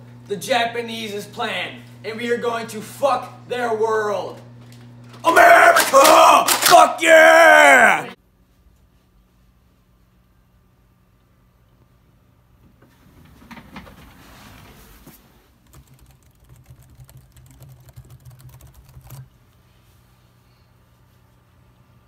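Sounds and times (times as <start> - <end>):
laptop keyboard typing: 15.6 - 19.3.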